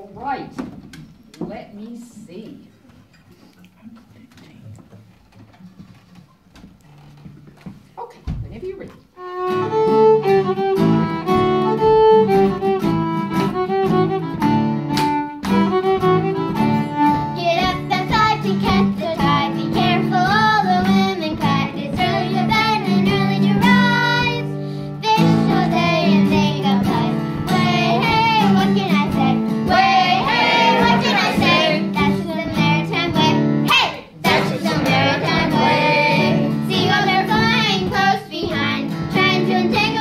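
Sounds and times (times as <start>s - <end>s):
fiddle: 9.2s - 33.6s
strummed acoustic guitar: 9.4s - 40.0s
children singing: 17.4s - 40.0s.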